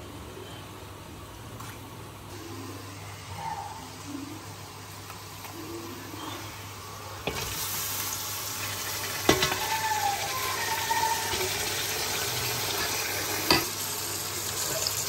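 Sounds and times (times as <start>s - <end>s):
steady frying hiss: 2.2s - 15.0s
tomatoes sizzling in hot oil: 6.7s - 15.0s.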